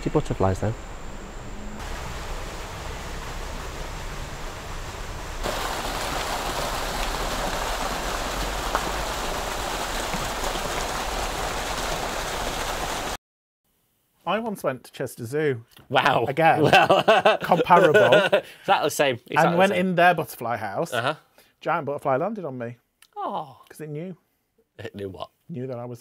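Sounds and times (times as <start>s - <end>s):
fountain splashing into pond: 1.8s - 13.2s.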